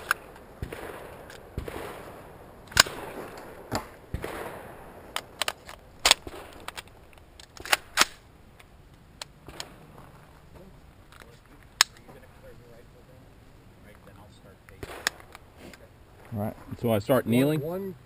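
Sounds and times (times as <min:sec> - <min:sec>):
gunshots: 0:00.0 - 0:06.8, 0:09.4 - 0:10.0, 0:14.8 - 0:15.4.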